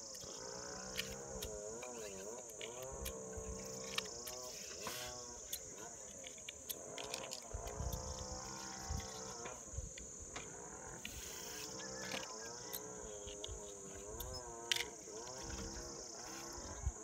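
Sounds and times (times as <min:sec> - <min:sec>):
high insect drone: 0:00.0 - 0:17.0
wavering calls: 0:10.9 - 0:16.8.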